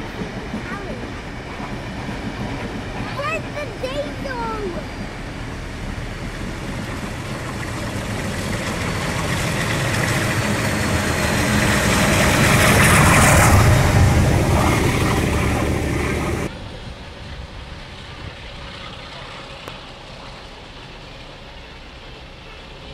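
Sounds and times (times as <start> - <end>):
diesel locomotive engine: 0.0 - 22.9
distant rumble: 0.0 - 22.9
wheel and rail noise: 0.0 - 22.9.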